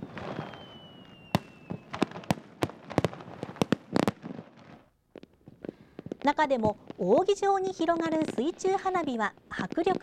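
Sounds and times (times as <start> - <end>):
firework falling whistle: 0.0 - 2.4
firework bangs and crackles: 0.0 - 10.0.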